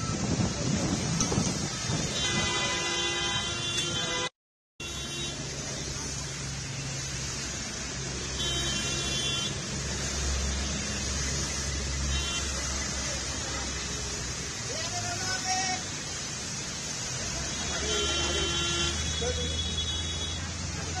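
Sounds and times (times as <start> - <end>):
traffic on a wet road: 0.0 - 21.0
car horns honking: 2.0 - 5.6, 8.2 - 9.6, 12.0 - 12.9, 17.4 - 20.5.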